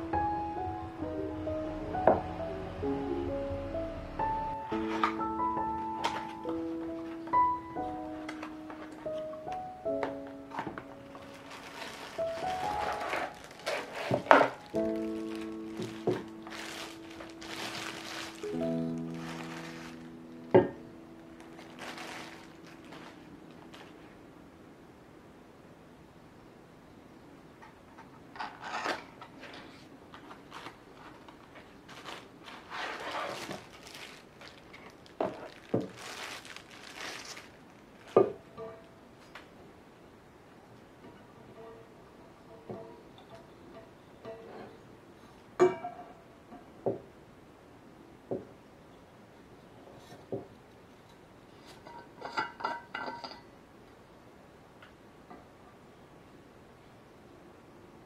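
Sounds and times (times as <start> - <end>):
cardboard packaging rustling: 4.7 - 5.4, 10.6 - 24.2, 29.4 - 38.4.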